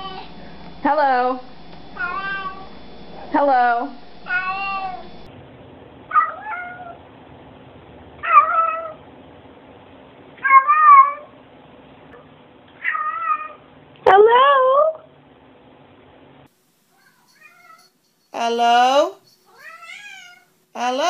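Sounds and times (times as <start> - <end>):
cats meowing: 2.0 - 2.7, 4.3 - 5.1, 12.8 - 13.6, 17.0 - 17.9, 19.5 - 20.5.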